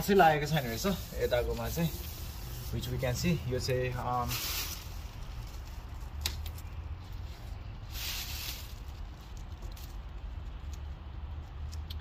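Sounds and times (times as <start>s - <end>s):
tape ripping hiss: 0.0s - 10.9s
steady low rumble: 0.0s - 12.0s.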